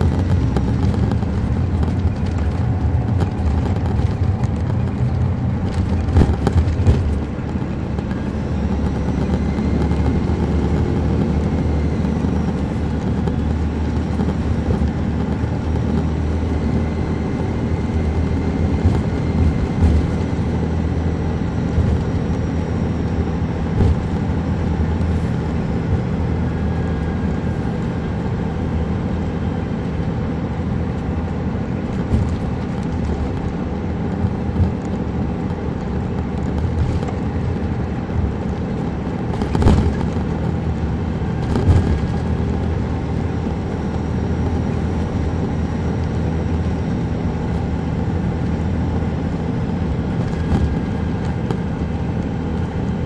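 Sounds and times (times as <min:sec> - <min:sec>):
knocks and rattles: 0:00.0 - 0:11.3
diesel engine running: 0:00.0 - 0:53.0
road noise: 0:00.0 - 0:53.0.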